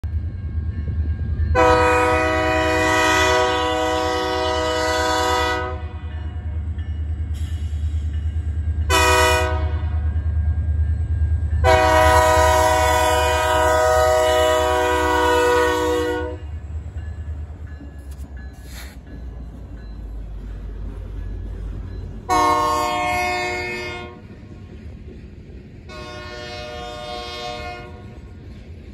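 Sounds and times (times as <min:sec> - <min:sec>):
passing train rumble: 0:00.0 - 0:28.9
locomotive air horn blasts: 0:01.5 - 0:06.1, 0:08.9 - 0:10.0, 0:11.6 - 0:16.5, 0:22.3 - 0:24.2, 0:25.9 - 0:28.1.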